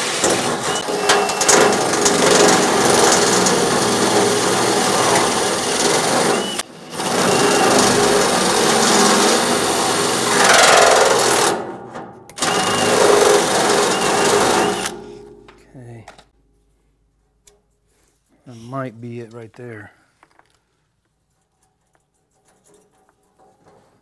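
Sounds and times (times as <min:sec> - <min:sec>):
drill motor whine: 0:00.0 - 0:11.5, 0:12.4 - 0:15.0
drill grinding through steel: 0:00.0 - 0:11.6, 0:12.4 - 0:15.0.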